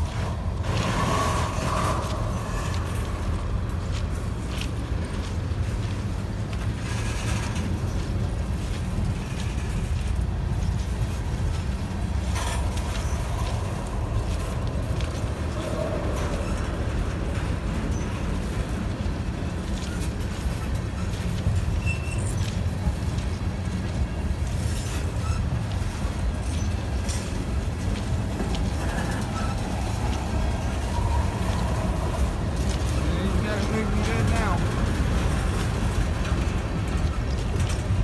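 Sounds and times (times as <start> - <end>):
freight train rumbling: 0.0 - 38.0.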